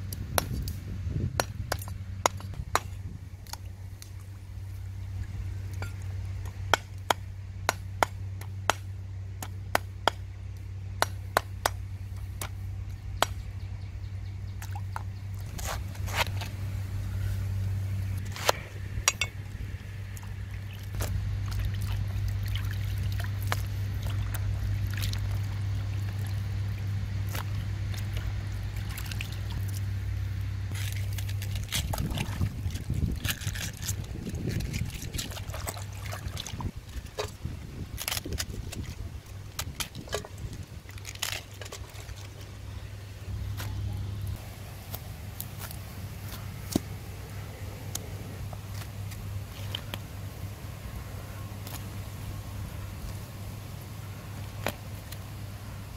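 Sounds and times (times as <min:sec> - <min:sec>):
steady low hum: 0:00.0 - 0:55.9
water sloshing and trickling: 0:14.5 - 0:16.7, 0:18.0 - 0:29.9, 0:30.7 - 0:42.9, 0:48.5 - 0:50.2.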